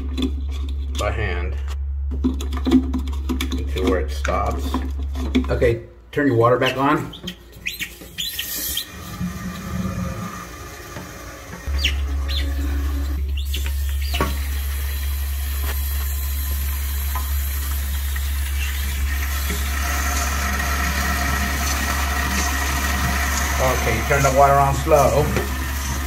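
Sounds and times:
short squeaks: 7.1s - 8.9s
water rushing into toilet tank: 8.5s - 26.0s.

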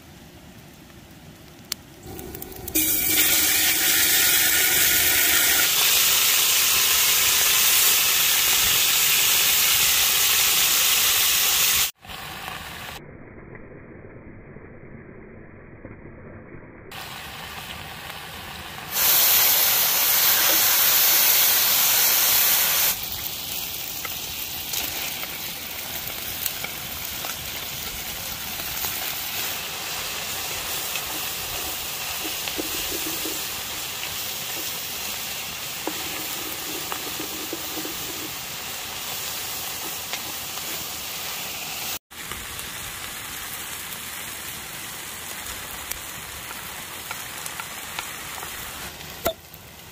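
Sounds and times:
pot hissing and sizzling: 1.9s - 13.0s, 16.9s - 49.9s
loud steam hiss: 2.0s - 12.0s, 18.9s - 25.8s, 26.4s - 42.0s.

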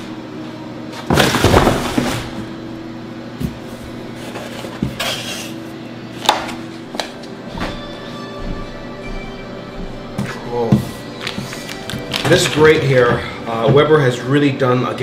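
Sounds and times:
faint background music: 0.0s - 15.0s
cardboard rustling and scraping: 3.5s - 5.6s.

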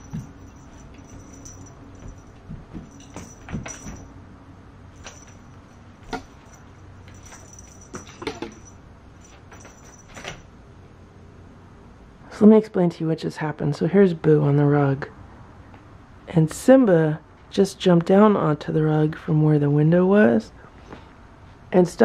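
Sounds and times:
cat batting toy on carpet: 0.0s - 4.1s, 5.0s - 10.4s.

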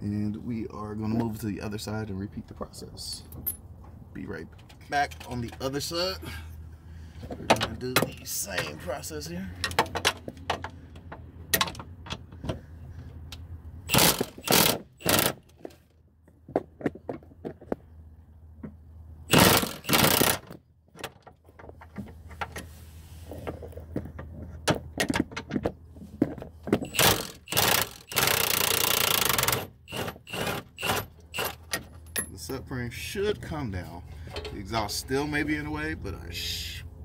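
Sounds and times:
impact wrench hammering: 13.9s - 15.4s, 19.3s - 20.5s, 26.8s - 31.6s.

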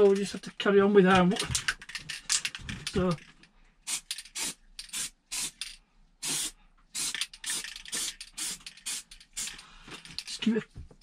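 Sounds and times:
aerosol spray hissing bursts: 3.9s - 5.6s, 6.2s - 9.5s.

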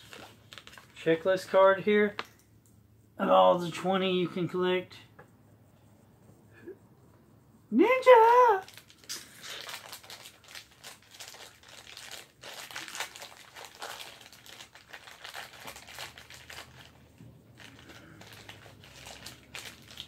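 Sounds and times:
plastic packaging crinkling: 0.0s - 1.1s, 8.6s - 20.0s.

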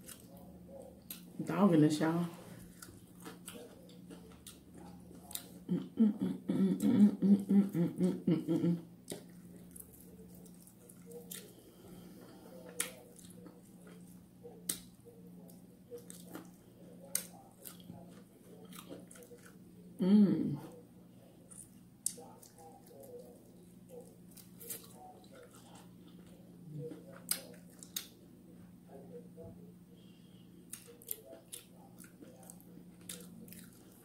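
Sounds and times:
wet chewing: 2.5s - 5.8s, 8.5s - 19.9s, 21.2s - 28.2s, 30.7s - 34.0s
woman humming: 5.7s - 8.8s, 20.0s - 20.7s.

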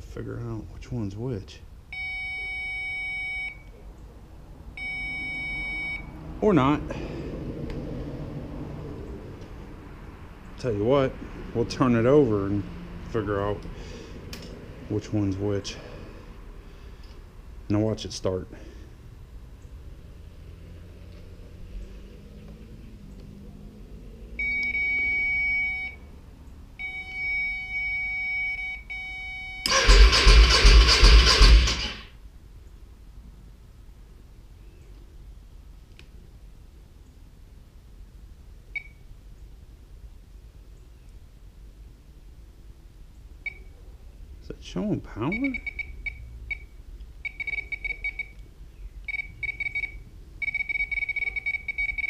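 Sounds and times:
circuit tester beeping: 2.0s - 3.7s, 4.8s - 6.1s, 24.4s - 26.0s, 26.8s - 29.8s, 45.3s - 48.4s, 49.1s - 52.0s
loud rough noise: 29.7s - 32.2s.

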